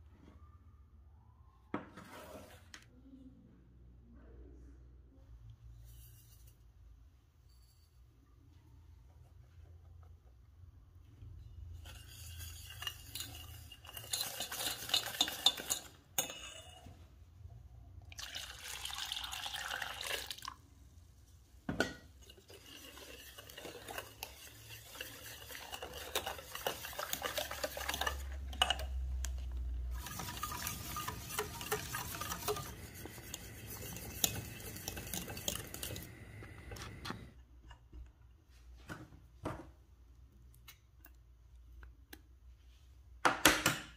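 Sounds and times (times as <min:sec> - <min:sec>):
utensil scraping mixing bowl: 0:11.5 - 0:17.0, 0:22.1 - 0:37.4.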